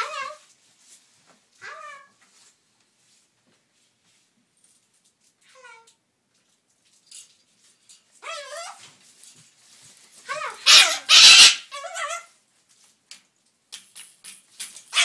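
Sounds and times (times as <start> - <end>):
cockatoo warbling calls: 10.3 - 12.3
cockatoo harsh screech: 10.5 - 11.8.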